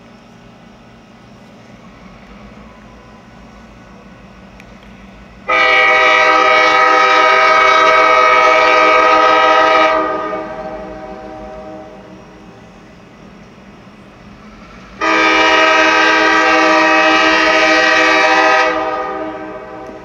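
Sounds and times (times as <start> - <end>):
locomotive air horn blast: 5.5 - 12.4, 14.7 - 20.0.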